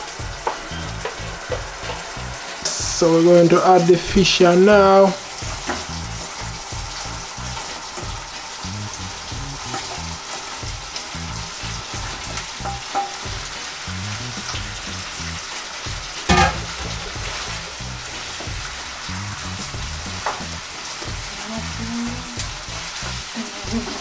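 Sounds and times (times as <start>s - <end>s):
sauce sizzling and bubbling: 0.0s - 24.0s.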